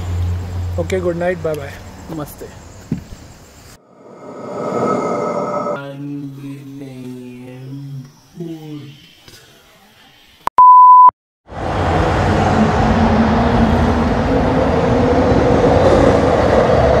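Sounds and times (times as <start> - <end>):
passing train rumble: 3.8 - 6.0, 11.5 - 17.0
short electronic beep: 10.5 - 11.1.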